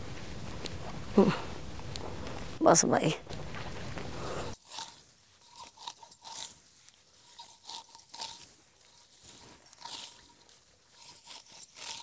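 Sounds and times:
sickle cutting grass: 4.5 - 12.0.

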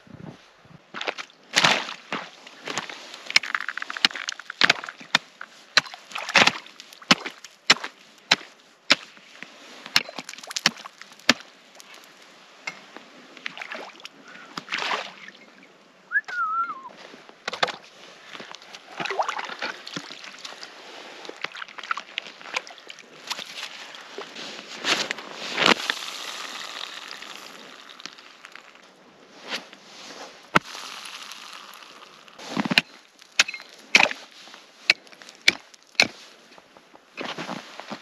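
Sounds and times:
axe chopping ice: 3.3 - 9.1, 9.9 - 11.4, 32.4 - 34.3, 34.9 - 36.2
wavering whistle: 16.1 - 16.9
water sloshing: 18.8 - 24.4.

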